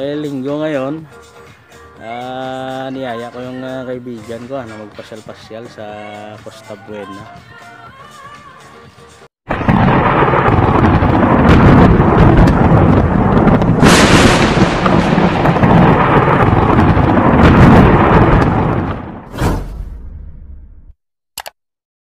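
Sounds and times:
thunder rumbling: 9.5s - 20.8s
sharp thunder crack: 9.5s - 20.9s.

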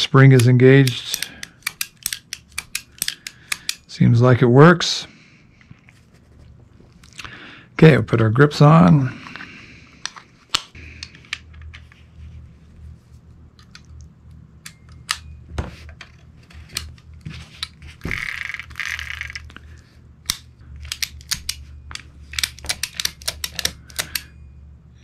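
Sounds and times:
revolver metal clicks: 0.0s - 3.9s, 20.2s - 24.3s
revolver action clicking: 0.3s - 3.9s.

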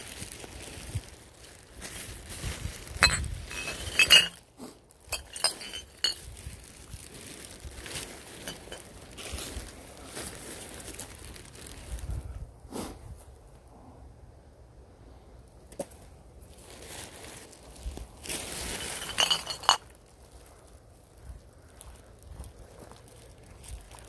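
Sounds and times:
footsteps on dry pine needles: 0.0s - 4.0s, 5.9s - 12.2s, 16.5s - 24.0s
plastic bag rustling: 0.0s - 12.3s, 16.4s - 24.0s
glass bottles clinking in a bag: 2.8s - 9.3s, 18.5s - 19.9s.

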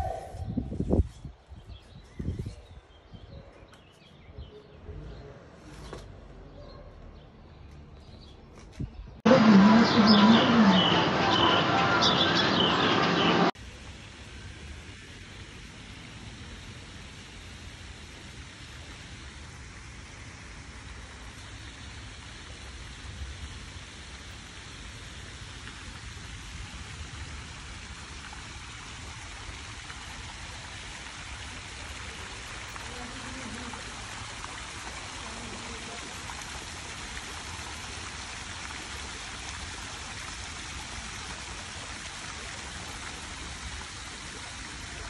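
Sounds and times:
fountain water splashing: 9.3s - 45.0s.

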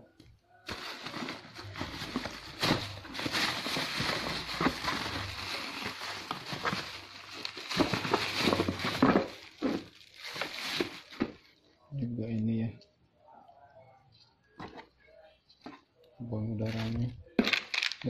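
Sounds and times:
cardboard and plastic rustling: 0.6s - 11.6s, 16.6s - 18.0s.

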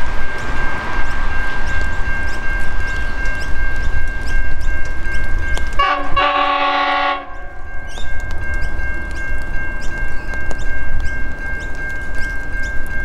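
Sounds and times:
diesel locomotive horn chord: 5.8s - 7.7s.

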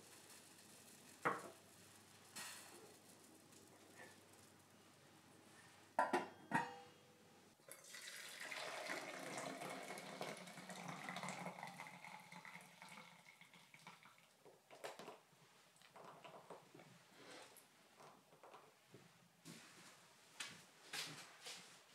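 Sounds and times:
tea pouring through strainer: 0.0s - 4.3s, 7.6s - 14.4s
lid clanking on saucepan: 6.0s - 6.9s.

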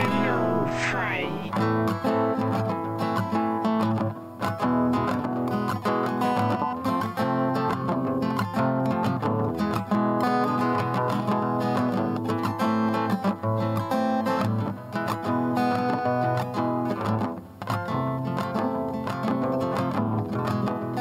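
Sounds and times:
acoustic guitar strummed and picked: 0.0s - 21.0s.

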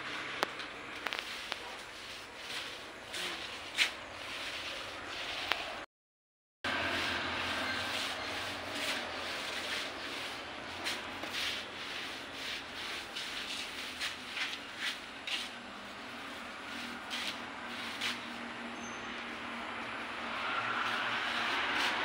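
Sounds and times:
paint roller scraping on wall: 0.0s - 5.9s, 6.7s - 22.0s.

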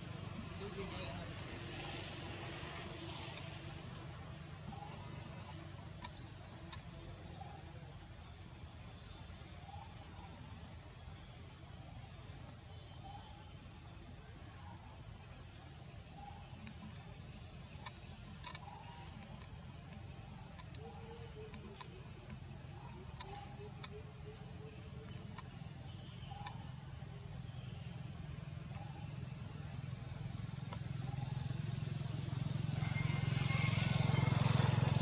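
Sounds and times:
vehicle engine approaching: 0.0s - 7.0s, 28.1s - 35.0s
insects droning: 0.0s - 35.0s
faint clicks: 17.7s - 24.0s, 25.0s - 25.6s.

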